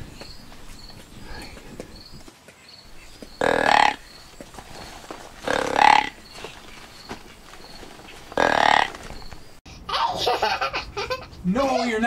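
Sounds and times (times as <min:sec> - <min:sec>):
deer grunt call: 0:05.4 - 0:06.2.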